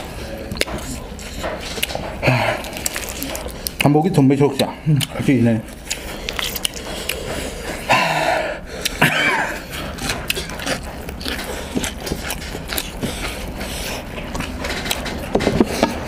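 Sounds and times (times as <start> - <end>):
chewing and crunching: 0.0 - 8.0, 8.6 - 16.0
cough-like noise: 7.9 - 9.7.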